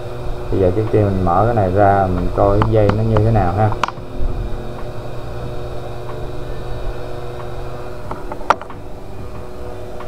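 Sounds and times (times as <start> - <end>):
hot-air gun whirring: 0.0 - 10.0
sharp click: 2.6 - 4.0.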